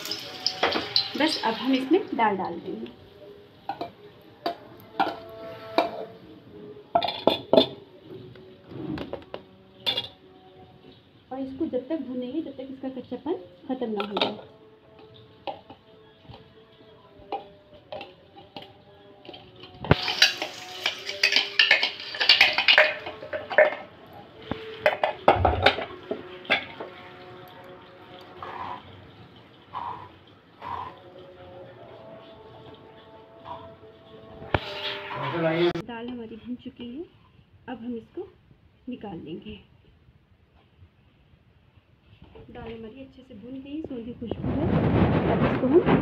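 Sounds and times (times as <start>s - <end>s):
lentils clinking into steel pan: 0.0s - 1.5s, 17.3s - 27.0s
spatula scraping a metal pan: 3.7s - 6.3s, 15.0s - 29.0s, 29.7s - 35.8s.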